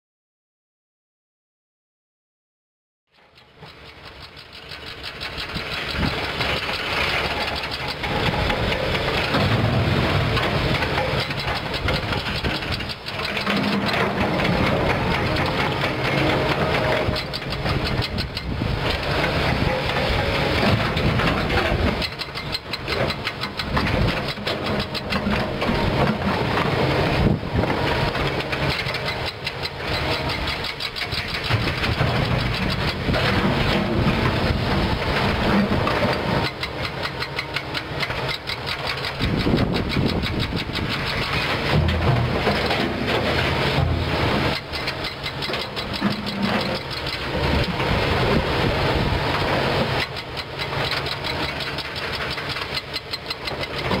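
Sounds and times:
excavator diesel engine: 3.1s - 54.0s
rock clattering against metal: 5.3s - 48.0s.

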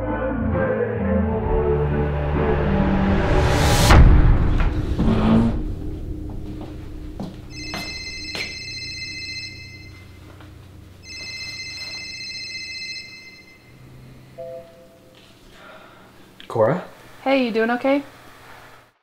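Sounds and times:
phone ringing: 7.5s - 15.1s.

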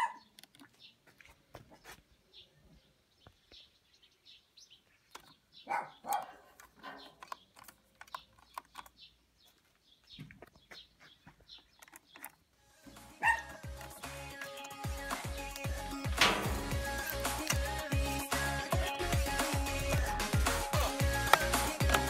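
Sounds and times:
hands tapping plastic coffee machine: 21.3s - 22.0s.

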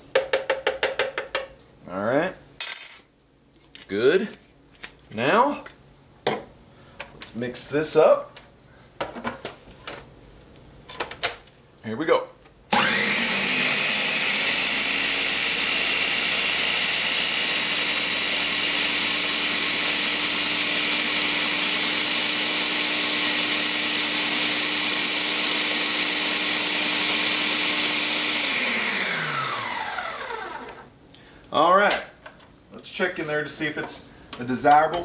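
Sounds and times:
blender motor winding down: 12.7s - 30.9s
blender running: 12.7s - 30.9s.

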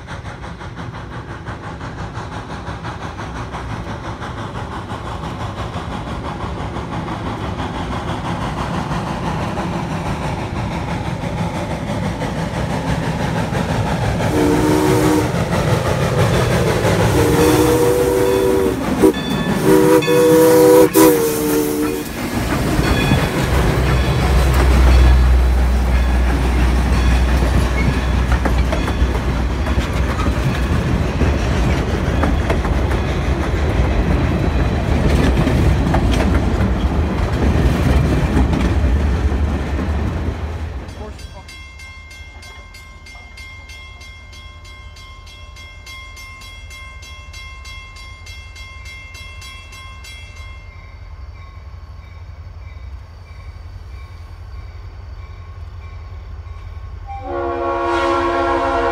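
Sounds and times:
steam locomotive passing: 0.0s - 58.9s
steam whistle blasts: 14.3s - 15.4s, 17.1s - 22.2s, 57.1s - 58.9s
wheels clacking over rail joints: 15.2s - 43.3s.

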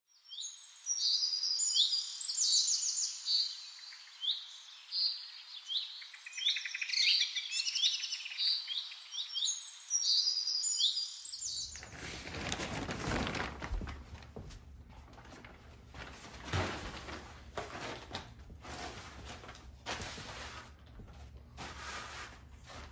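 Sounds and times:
songbirds chirping and singing: 0.2s - 11.8s
tarp rustling: 11.8s - 22.9s.

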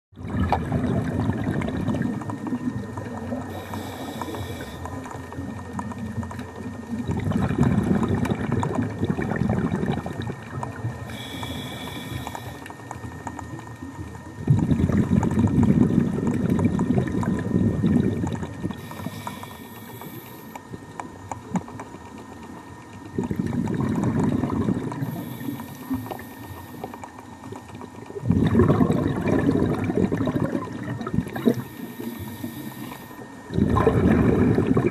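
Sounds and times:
gurgling exhaled bubbles: 0.2s - 34.9s
regulator inhalation hiss: 3.4s - 5.0s, 11.1s - 12.7s, 18.8s - 20.6s, 25.0s - 27.0s, 31.4s - 33.3s.

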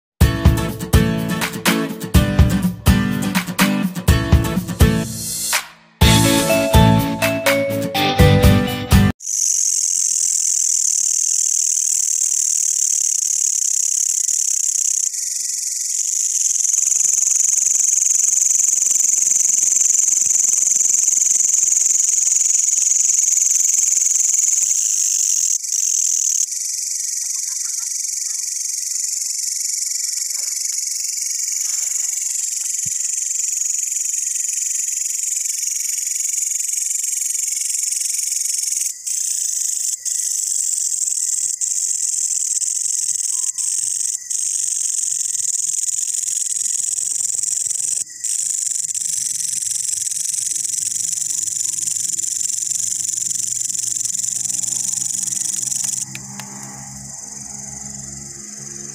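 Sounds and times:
katydids trilling: 9.2s - 58.9s.

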